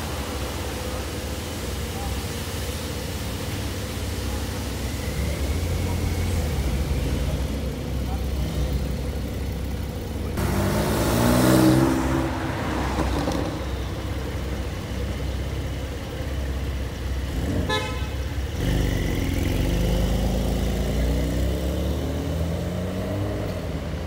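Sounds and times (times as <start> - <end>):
car engine accelerating: 0.0 - 17.8, 18.4 - 24.0
car horn toot: 17.6 - 18.4.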